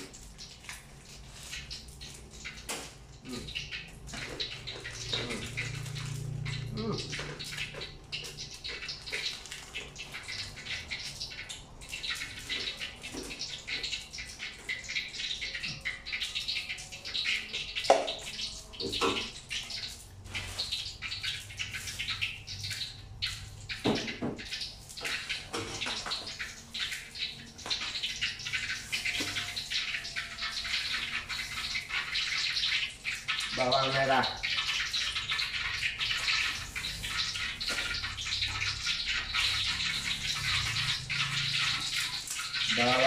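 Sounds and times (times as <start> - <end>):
oil sizzling in a frying pan: 0.0 - 43.0.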